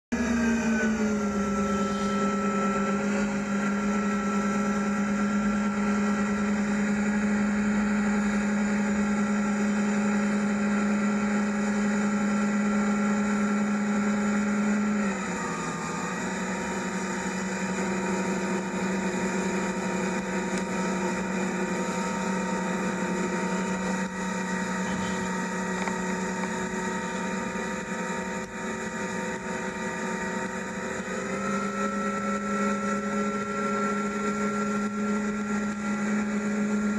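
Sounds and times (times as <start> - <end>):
outboard engines running: 0.1 - 36.9.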